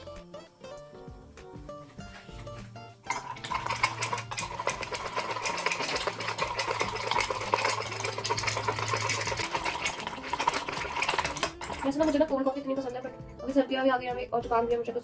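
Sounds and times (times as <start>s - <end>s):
metal spoon clattering in ceramic mug: 3.1s - 12.6s.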